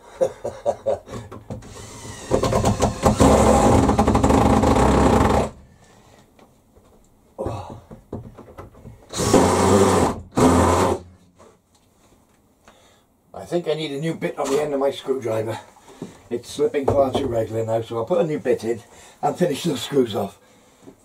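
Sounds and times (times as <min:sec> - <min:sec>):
cordless drill driving screws: 0:01.6 - 0:05.5.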